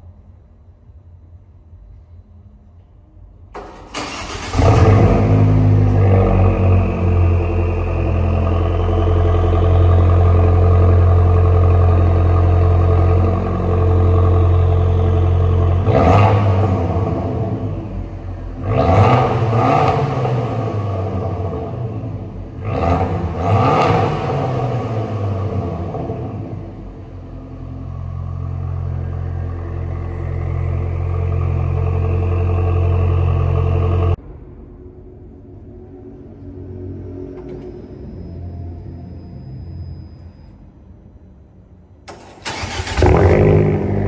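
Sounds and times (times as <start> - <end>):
car engine idling: 3.6 - 34.2
engine revving: 4.0 - 34.2, 42.1 - 44.0
loud exhaust burst: 42.4 - 44.0.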